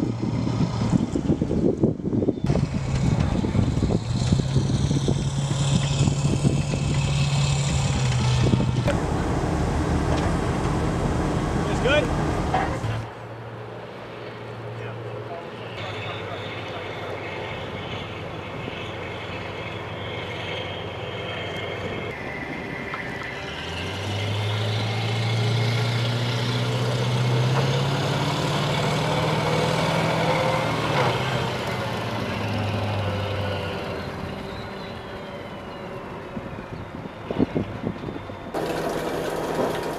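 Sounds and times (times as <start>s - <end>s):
heavy vehicle engines running: 0.0s - 39.9s
vehicle passing close: 2.5s - 14.6s, 16.8s - 37.7s.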